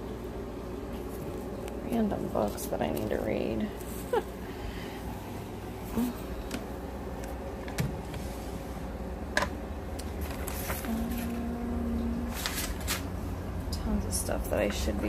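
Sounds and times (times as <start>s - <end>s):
low steady hum: 0.0s - 15.0s
short hum-like tone: 3.8s - 7.6s, 8.2s - 14.1s.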